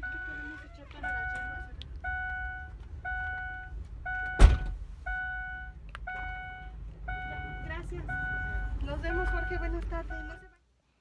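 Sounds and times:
car warning chime dinging: 0:00.0 - 0:10.6
loud thunk: 0:04.4 - 0:04.8.

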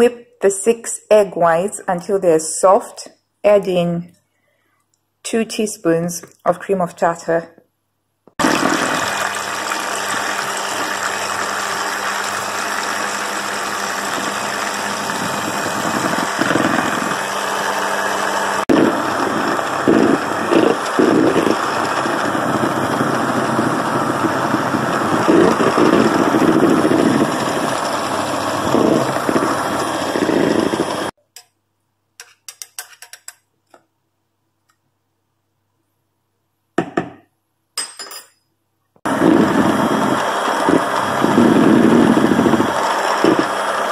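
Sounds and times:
electric hand mixer whisking: 0:08.4 - 0:31.2, 0:39.1 - 0:43.9.

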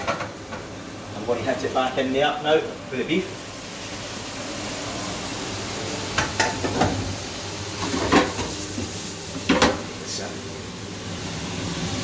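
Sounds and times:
meat sizzling in a pan: 0:00.0 - 0:12.0
knocks against the pan: 0:09.5 - 0:09.8.

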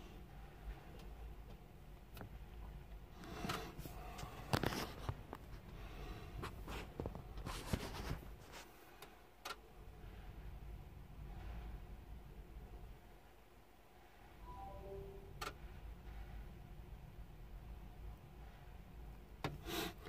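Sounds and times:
low steady hum: 0:14.0 - 0:19.4.

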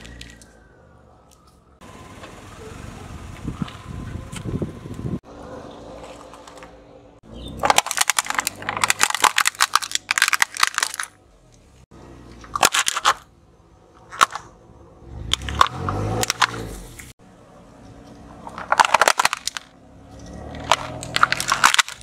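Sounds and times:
tyre crunching dried chickpeas: 0:07.5 - 0:11.2, 0:18.5 - 0:22.0.

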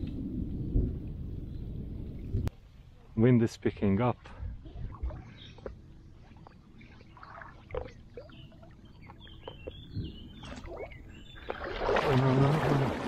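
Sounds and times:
wind rumbling on microphone: 0:00.0 - 0:03.2, 0:04.2 - 0:13.0
light water sounds: 0:03.7 - 0:13.0.

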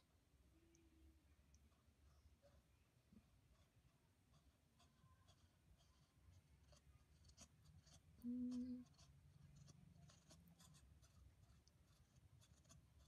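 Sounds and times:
fingers scratching fur: 0:03.5 - 0:13.0
low hummed tone: 0:08.2 - 0:08.8.

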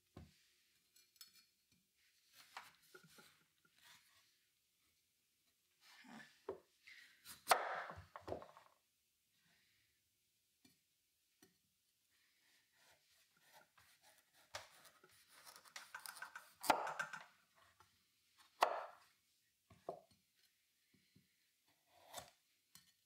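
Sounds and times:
knife slicing squash skin: 0:12.8 - 0:17.0, 0:21.9 - 0:22.4.

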